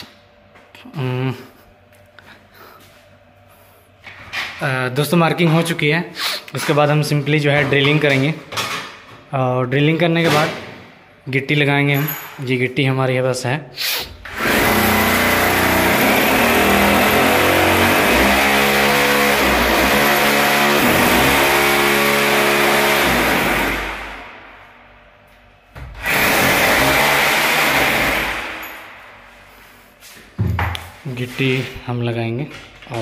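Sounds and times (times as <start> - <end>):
hammer drill boring into wall: 14.2 - 24.2, 26.0 - 28.9.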